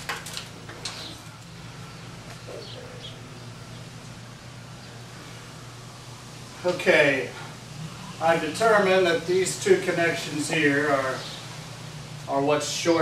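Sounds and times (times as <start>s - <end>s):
steady low hum: 0.0s - 13.0s
faint bird chirps: 1.9s - 5.1s.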